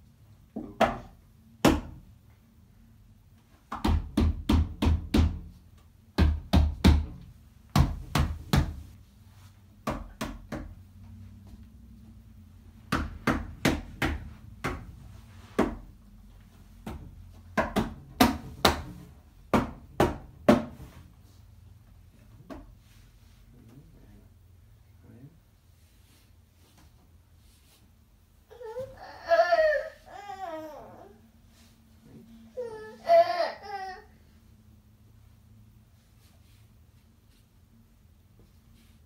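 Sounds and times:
hands tapping on plastic stool: 0:16.8 - 0:18.9.

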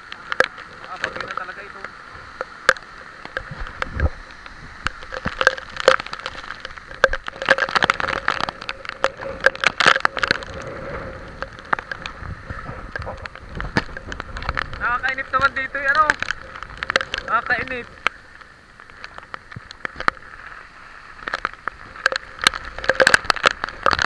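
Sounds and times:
heavy rain: 0:00.0 - 0:24.0
raindrops tapping near microphone: 0:00.0 - 0:24.0.

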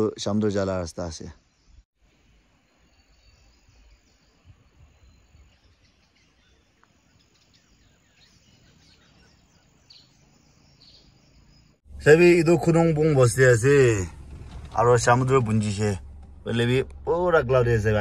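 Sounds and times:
distant bird chirps: 0:01.2 - 0:12.0.

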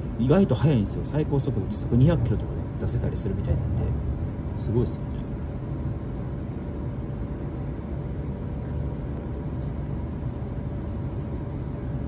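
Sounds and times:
train rumbling on track: 0:00.0 - 0:05.2
faint steady hum: 0:00.0 - 0:12.0.

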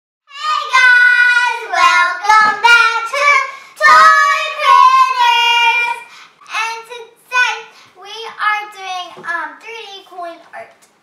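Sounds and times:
girls singing together: 0:00.3 - 0:06.2.

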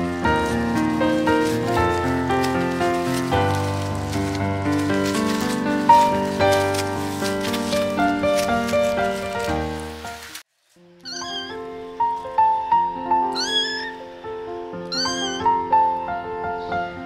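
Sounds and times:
background music: 0:00.0 - 0:10.4
kitten meowing: 0:11.0 - 0:11.7, 0:13.3 - 0:14.1, 0:14.8 - 0:15.7.

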